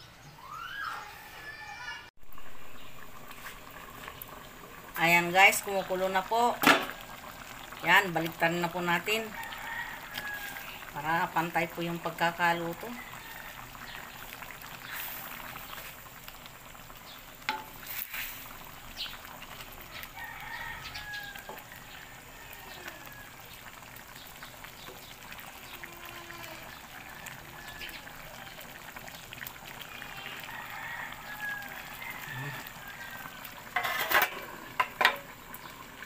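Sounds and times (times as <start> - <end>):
sauce bubbling and sizzling in a wok: 2.2 - 36.0
wooden spatula scraping and knocking pan: 17.5 - 18.4, 33.8 - 35.2.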